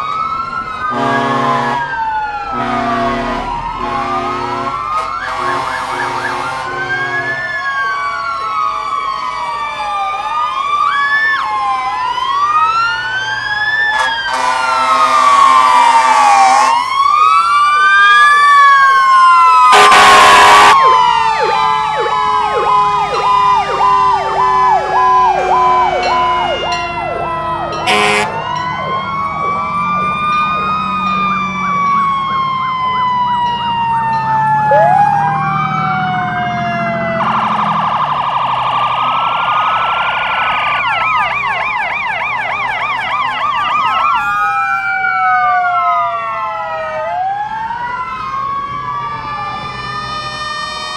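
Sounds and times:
fire truck sirens wailing: 0.0s - 50.9s
loud horn blasts: 0.9s - 7.5s, 13.9s - 16.8s, 19.7s - 21.0s, 22.9s - 26.8s, 27.8s - 28.5s, 50.1s - 50.9s.

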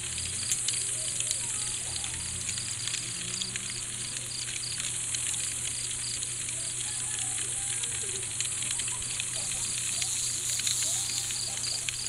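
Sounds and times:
faint clicks: 0.0s - 12.0s
cricket chirping: 0.2s - 12.0s
high-pitched insect hiss: 8.8s - 12.0s.

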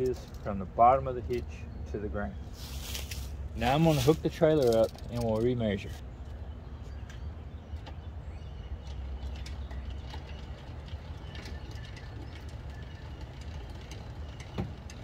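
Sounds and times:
metal clicks of trailer hitch: 0.0s - 0.6s, 4.0s - 6.4s.

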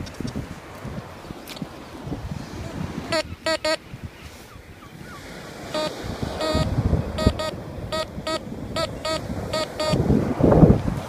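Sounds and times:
metal detector beeping: 3.1s - 3.8s, 5.8s - 10.0s.

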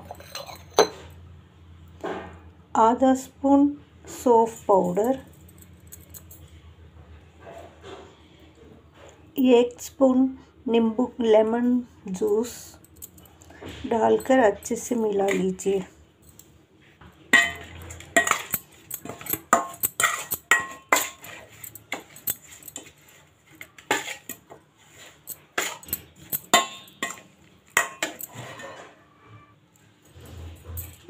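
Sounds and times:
metal spoon scraping steel bowl: 0.0s - 1.0s, 17.4s - 29.6s.

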